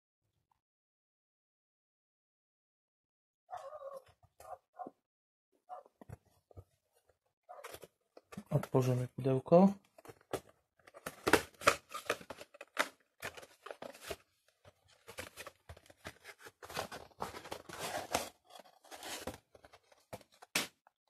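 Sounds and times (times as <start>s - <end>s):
packaging rustling and scraping: 7.5s - 8.9s, 10.0s - 20.7s.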